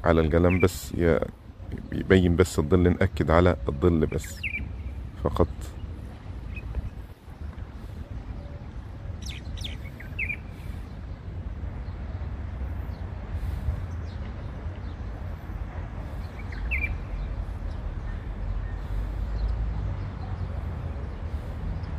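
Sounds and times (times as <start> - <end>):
bird chirps: 0.3 - 0.8, 3.3 - 7.0, 8.1 - 11.0, 16.1 - 20.6.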